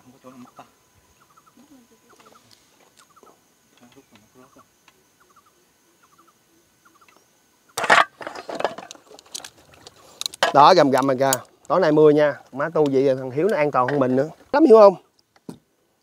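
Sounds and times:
faint bird calls: 0:00.0 - 0:08.5.

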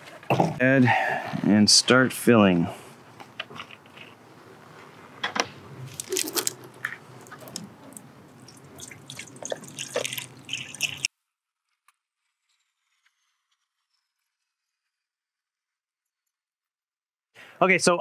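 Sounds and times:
plastic jug clicks and crinkles: 0:05.2 - 0:11.1
liquid glugging through funnel: 0:05.9 - 0:11.1.

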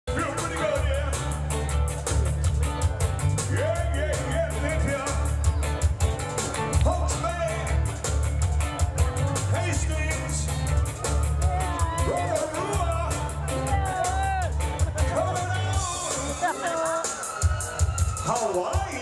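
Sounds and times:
bass line: 0:00.0 - 0:19.0
man singing: 0:00.1 - 0:01.7, 0:03.3 - 0:05.4, 0:06.8 - 0:08.0, 0:09.4 - 0:17.5, 0:18.2 - 0:19.0
drum beat: 0:00.1 - 0:19.0.

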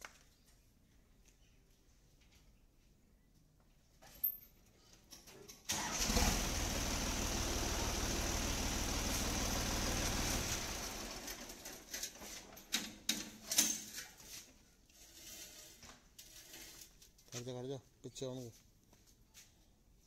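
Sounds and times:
tractor diesel engine running: 0:05.7 - 0:11.8.

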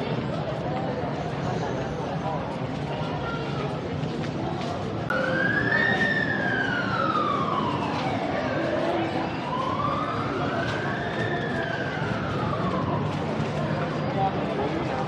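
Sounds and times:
crowd chatter: 0:00.0 - 0:15.0
emergency siren wailing: 0:05.1 - 0:14.9.

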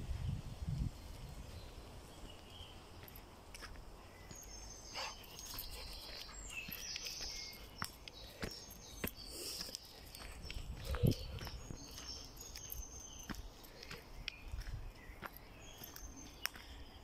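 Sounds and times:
footsteps on leafy dirt path: 0:00.8 - 0:17.0
high bird calls: 0:04.2 - 0:17.0.

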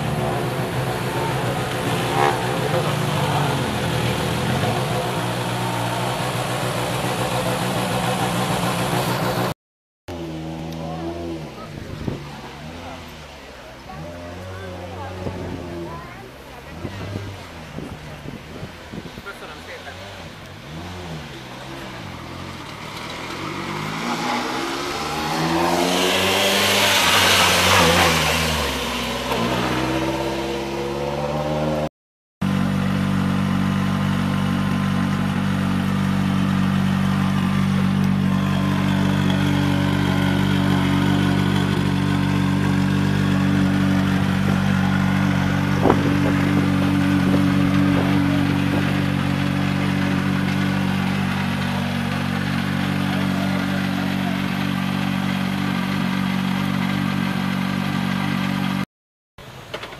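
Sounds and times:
rally car engine revving past: 0:00.0 - 0:06.8, 0:19.8 - 0:31.9
car engine idling: 0:00.0 - 0:09.5, 0:32.4 - 0:58.8.

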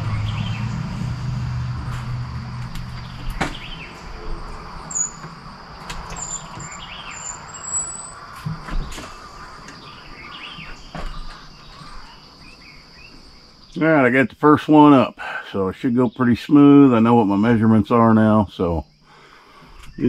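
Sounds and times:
low hum: 0:00.0 - 0:06.7
birds chirping: 0:00.0 - 0:20.0
insect drone: 0:00.0 - 0:20.0.

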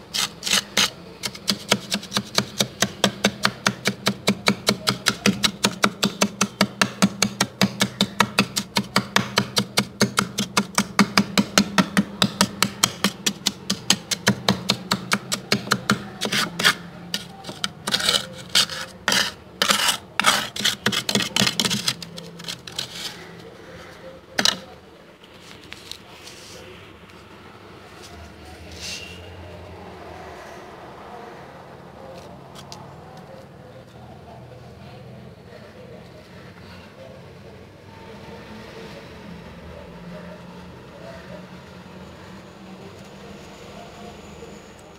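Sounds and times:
spoon scraping freezer frost: 0:00.0 - 0:24.7.

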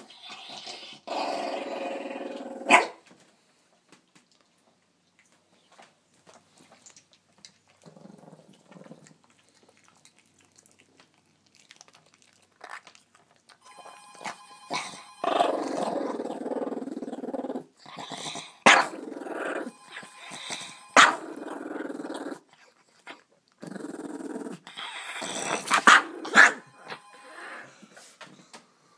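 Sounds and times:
small dog growling: 0:00.0 - 0:02.9, 0:07.7 - 0:13.0, 0:14.7 - 0:26.6.

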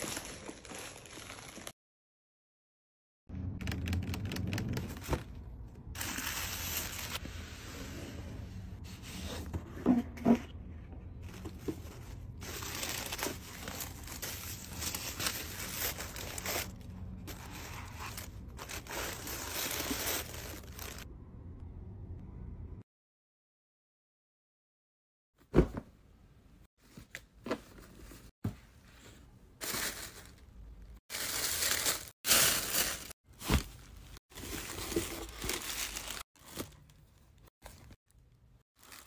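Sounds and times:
paper rustling and crinkling: 0:00.0 - 0:01.8, 0:11.2 - 0:21.0, 0:31.1 - 0:38.0.

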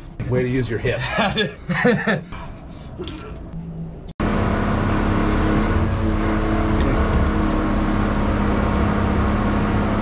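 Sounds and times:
engine running: 0:03.6 - 0:10.0.

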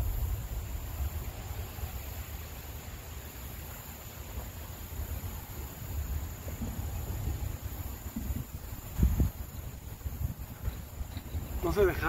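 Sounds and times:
steady hiss: 0:00.0 - 0:12.0
wind buffeting microphone: 0:05.0 - 0:12.0.

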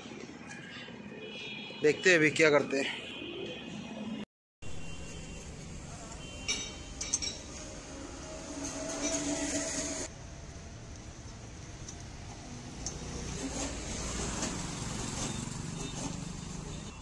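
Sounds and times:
steady hum: 0:04.7 - 0:10.2
metallic clinks: 0:06.5 - 0:07.5.

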